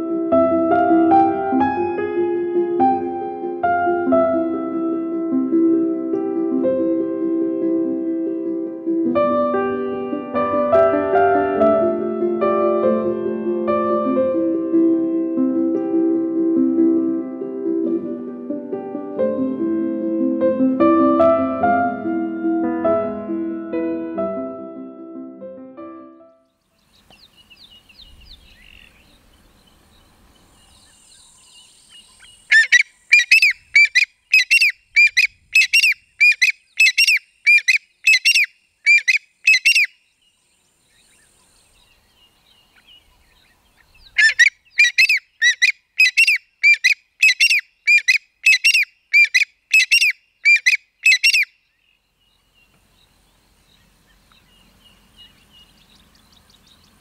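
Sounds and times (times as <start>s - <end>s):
francolin calling: 26.8s - 57.0s.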